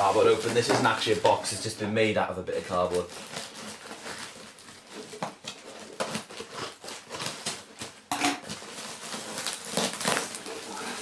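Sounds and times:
cardboard rustling and scraping: 0.0 - 1.6.

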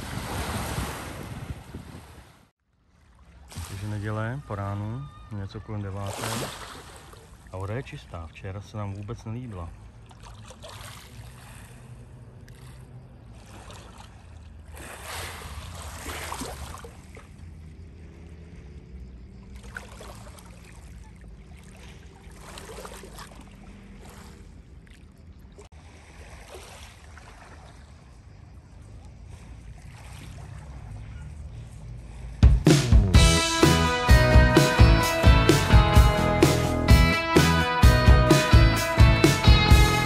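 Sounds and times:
wind rumbling on microphone: 0.0 - 2.5.

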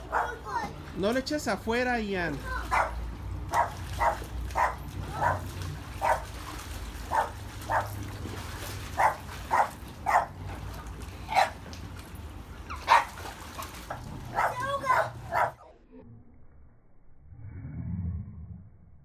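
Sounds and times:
dog barking: 0.1 - 0.4, 2.7 - 5.4, 6.0 - 6.2, 7.1 - 8.0, 9.0 - 10.4, 11.3 - 11.6, 12.8 - 13.1, 14.3 - 15.6.

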